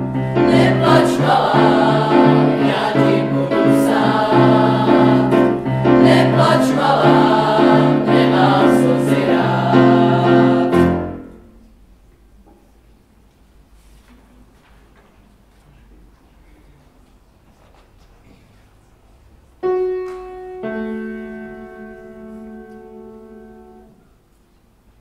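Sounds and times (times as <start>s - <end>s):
boys' choir singing: 0.0s - 11.4s.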